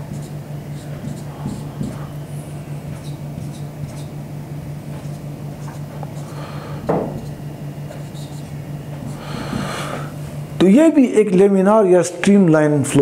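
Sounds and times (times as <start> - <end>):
marker scratching on whiteboard: 0.0 - 4.2, 4.8 - 6.4, 7.2 - 9.8
steady low hum: 0.0 - 13.0.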